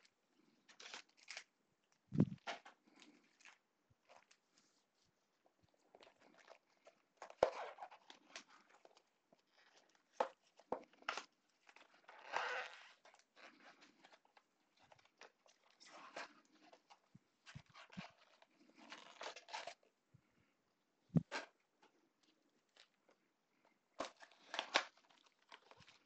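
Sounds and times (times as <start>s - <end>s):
cardboard and foil rustling: 7.2s - 19.8s, 24.0s - 26.0s.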